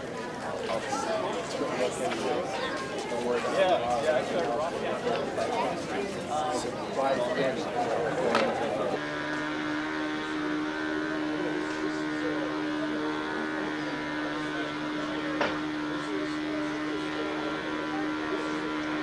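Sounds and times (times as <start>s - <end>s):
machine humming: 8.3s - 19.0s.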